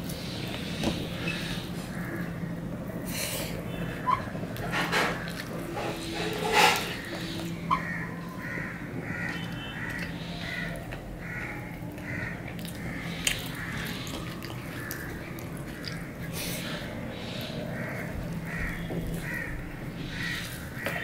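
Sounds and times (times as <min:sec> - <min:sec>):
crows cawing: 0:01.2 - 0:21.0.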